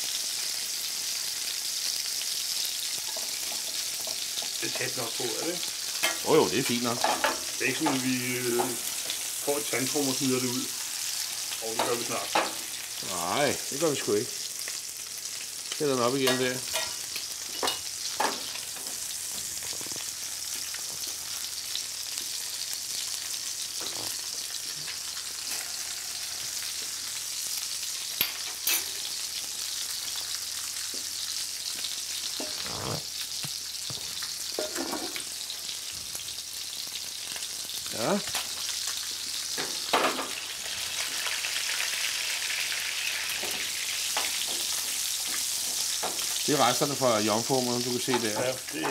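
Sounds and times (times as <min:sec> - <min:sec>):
fish frying in butter: 0:00.0 - 0:48.9.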